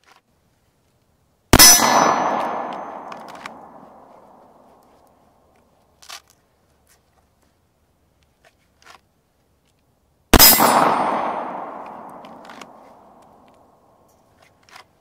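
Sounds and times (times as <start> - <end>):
steel target ringing: 1.6 - 4.4, 10.4 - 13.1
handgun shot: 1.6 - 4.7, 10.4 - 13.4
pistol holster clicks: 2.7 - 3.8.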